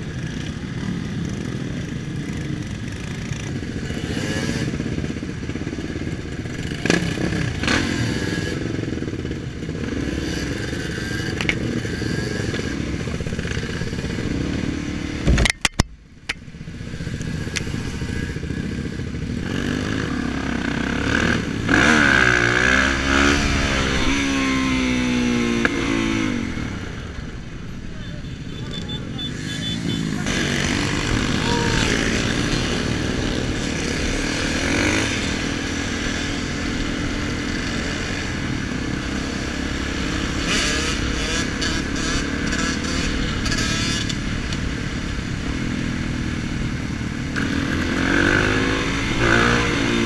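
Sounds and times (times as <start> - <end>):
dirt bike engines running: 0.0 - 15.3, 16.5 - 50.0
engine revving: 17.2 - 27.0, 28.8 - 44.5, 47.3 - 50.0.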